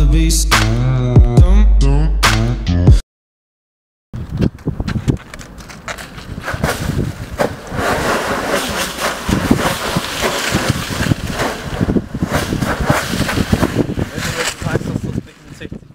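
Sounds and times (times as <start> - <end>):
wind buffeting microphone: 4.2 - 15.9
dry leaves crunching underfoot: 5.0 - 14.8.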